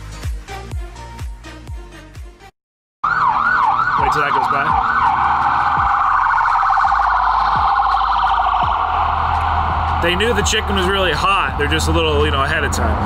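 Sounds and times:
emergency vehicle siren: 3.0s - 12.3s
low traffic rumble: 3.1s - 13.0s.

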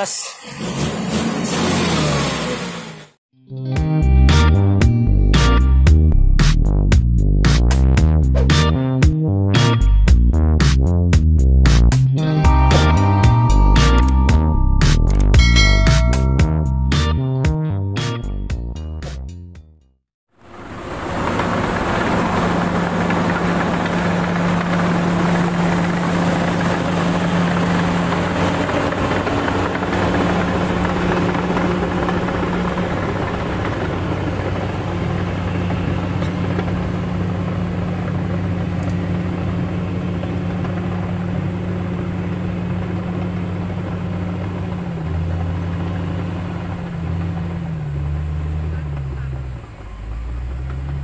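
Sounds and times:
heavy diesel engines running: 20.4s - 51.0s
dump truck engine: 32.7s - 51.0s.

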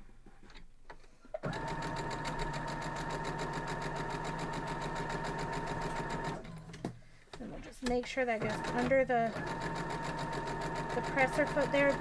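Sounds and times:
sewing machine stitching: 1.4s - 6.9s, 8.2s - 12.0s.

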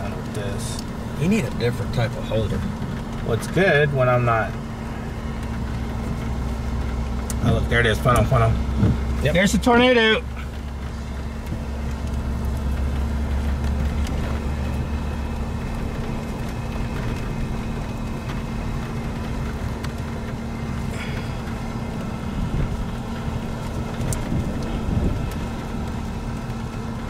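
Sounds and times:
vehicle engine idling: 0.0s - 27.0s.

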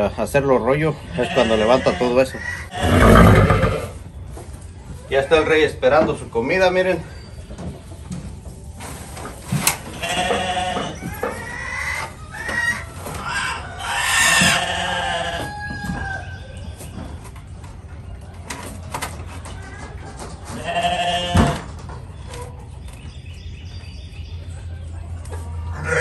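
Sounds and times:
sheep bleating: 1.2s - 4.0s, 14.4s - 15.4s, 20.6s - 21.6s, 25.7s - 26.0s.

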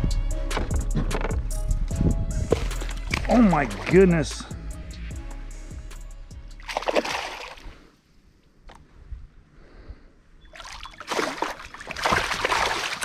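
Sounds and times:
fish splashing at water surface: 6.6s - 7.8s, 10.6s - 13.0s.

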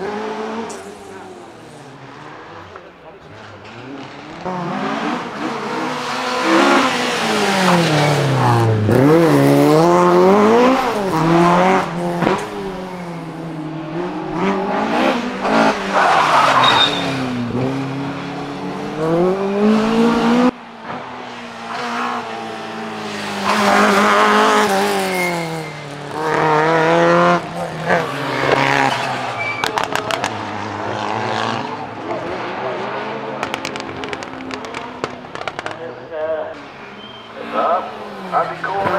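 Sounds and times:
rally car engine revving: 0.0s - 38.9s
tyre squeal: 15.7s - 17.4s, 25.0s - 26.5s, 27.6s - 30.2s, 36.7s - 37.6s.

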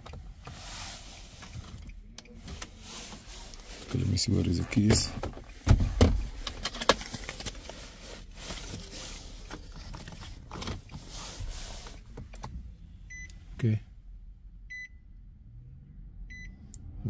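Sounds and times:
car keys jangling: 3.4s - 7.8s.

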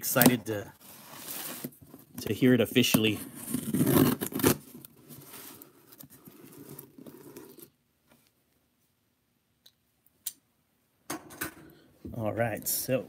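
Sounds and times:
cardboard scraping and rustling: 0.8s - 7.7s
packing tape tearing: 3.3s - 5.0s.

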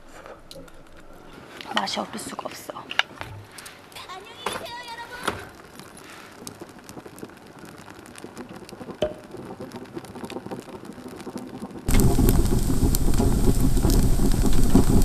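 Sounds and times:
wood fire crackling and popping: 0.0s - 15.0s.

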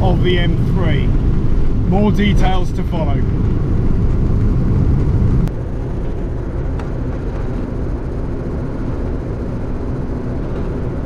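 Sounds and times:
car engine running: 0.0s - 11.0s
road noise: 0.0s - 11.0s.

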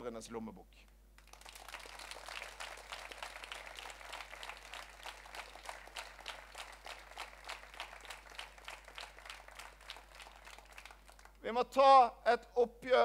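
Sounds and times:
audience applauding: 1.2s - 11.4s.

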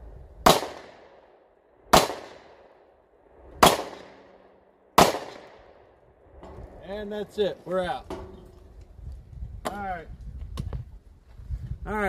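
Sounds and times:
pistol shots with echo: 0.4s - 2.9s, 3.6s - 5.8s.

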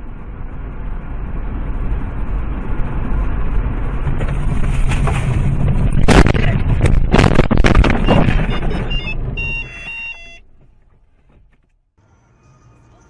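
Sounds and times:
car engine and road noise: 0.0s - 13.0s
car thudding over rough ground: 3.6s - 11.8s.

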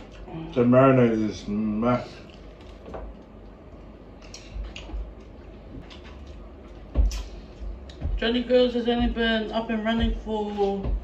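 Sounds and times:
soft chewing: 1.9s - 8.1s.

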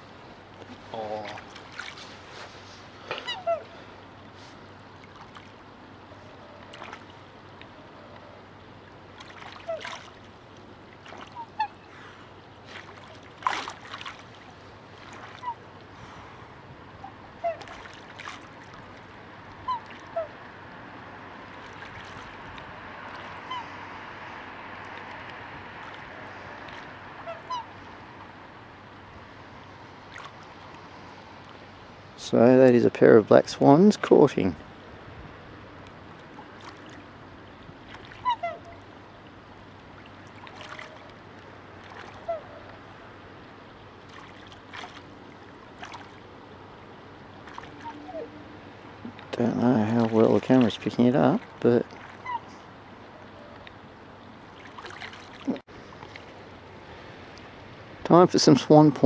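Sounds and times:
swans bugling calls: 3.1s - 4.3s, 9.5s - 10.0s, 11.0s - 12.0s, 14.8s - 15.8s, 16.9s - 17.8s, 18.8s - 20.7s, 23.0s - 23.9s, 26.2s - 28.3s, 38.0s - 39.1s, 40.4s - 43.0s, 47.4s - 49.2s, 52.0s - 53.7s.

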